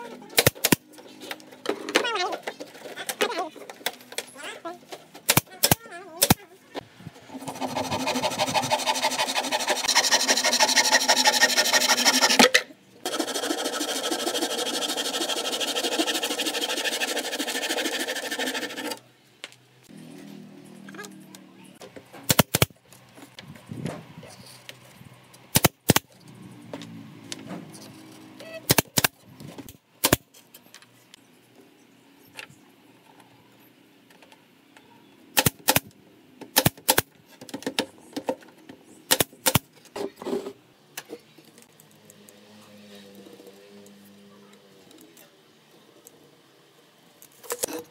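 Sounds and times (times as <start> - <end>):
nail gun shots: 0.3 - 0.9, 5.2 - 6.4, 22.3 - 22.7, 25.5 - 26.1, 28.7 - 29.2, 30.0 - 30.2, 35.4 - 35.9, 36.5 - 37.1, 39.1 - 39.7.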